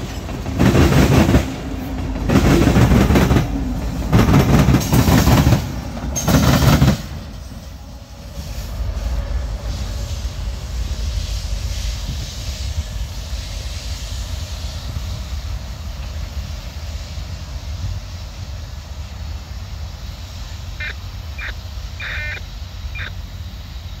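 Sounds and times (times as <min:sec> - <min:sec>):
diesel locomotive rumble: 0:00.0 - 0:24.0
bird short calls: 0:20.8 - 0:23.2.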